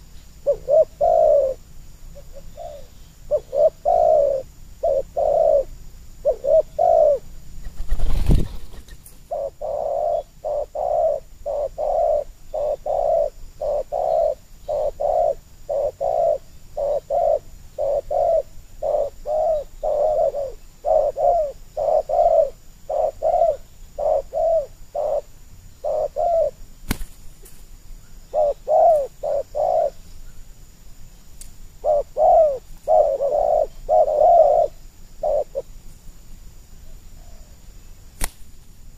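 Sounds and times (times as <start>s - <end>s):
doves cooing: 0.0s - 27.3s, 28.0s - 30.4s, 31.8s - 35.8s
sharp click: 38.2s - 38.5s.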